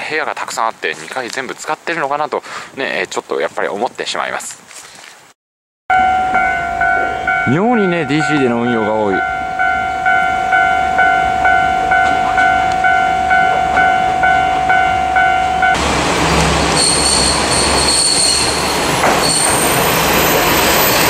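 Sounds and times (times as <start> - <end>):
electronic warning bell ringing: 5.9 - 15.8
diesel railcar engine running: 9.0 - 21.0
train wheel noise: 9.4 - 21.0
high brake squeal: 16.7 - 21.0.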